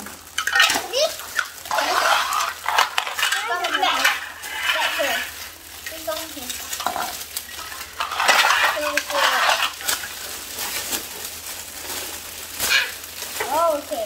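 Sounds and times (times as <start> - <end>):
faint children's voices: 0.0 - 7.2, 8.2 - 9.8, 12.6 - 14.0
plastic toy parts rustling: 0.0 - 14.0.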